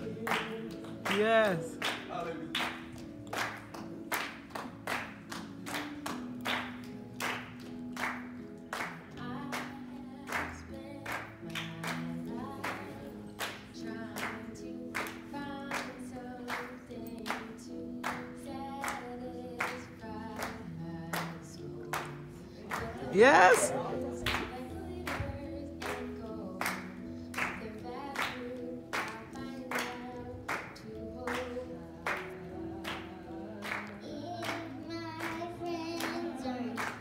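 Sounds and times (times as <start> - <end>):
voices singing gospel in harmony: 0.0 - 3.6, 8.8 - 37.0
hand-clapping on the beat: 0.0 - 37.0.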